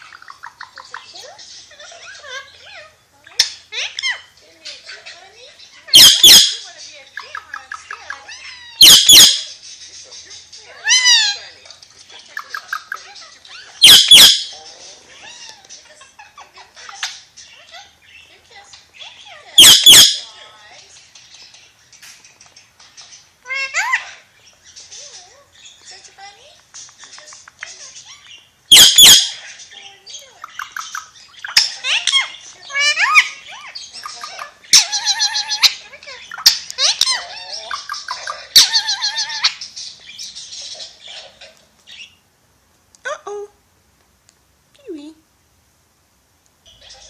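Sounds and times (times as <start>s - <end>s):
parakeet chattering: 0.0s - 42.3s, 46.6s - 47.0s
parakeet shrill screeches: 5.9s - 6.7s, 8.2s - 9.6s, 13.6s - 14.6s, 19.6s - 20.3s, 28.7s - 29.6s, 31.0s - 35.8s.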